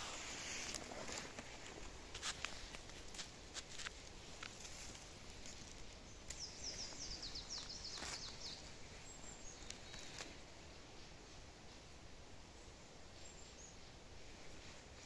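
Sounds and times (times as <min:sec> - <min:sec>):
clicks and rustles in grass: 0:00.0 - 0:10.5
faint forest ambience: 0:00.0 - 0:15.0.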